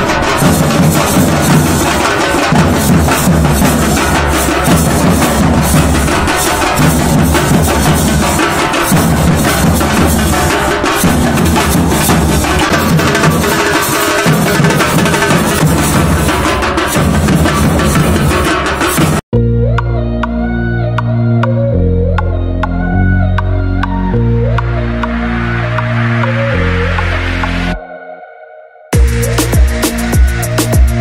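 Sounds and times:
drummers beating barrel drums: 0.0 - 19.2, 29.0 - 31.0.

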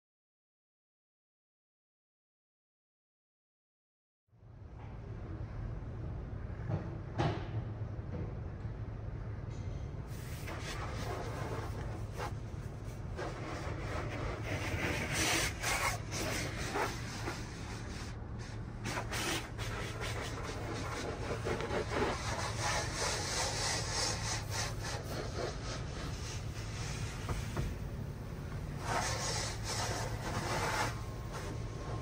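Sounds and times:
steady low hum: 4.4 - 32.0
car wash cloth strips rubbing: 10.2 - 27.9, 28.5 - 31.8.

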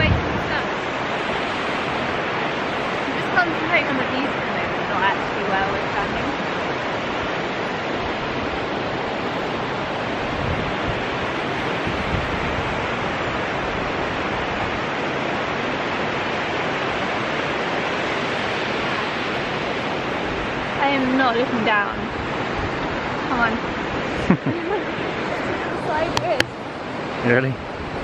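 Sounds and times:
river rapids rushing: 0.0 - 28.0.

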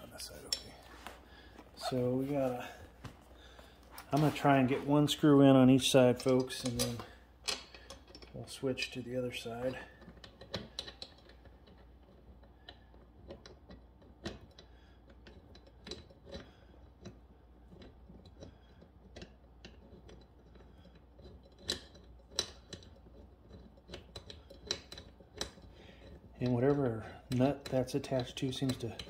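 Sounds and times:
screws and metal parts clicking: 6.0 - 8.4, 9.5 - 29.0.

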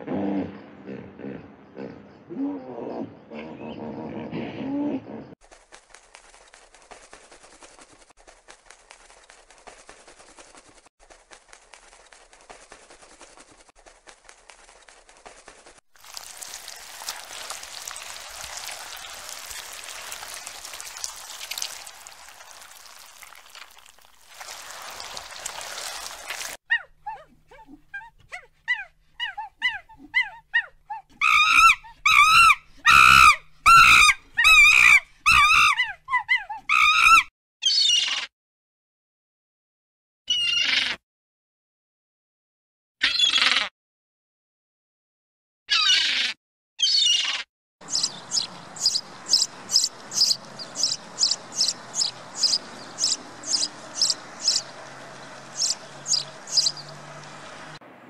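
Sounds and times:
monkey calling: 28.7 - 38.3, 45.7 - 54.8, 55.4 - 56.9
sparrow chirping: 47.9 - 54.8, 55.4 - 57.0.

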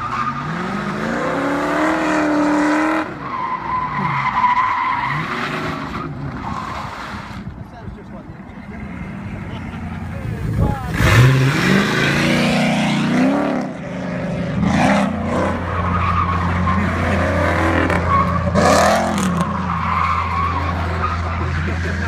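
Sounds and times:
tyres skidding: 0.0 - 22.0
car engine revving: 8.6 - 22.0.

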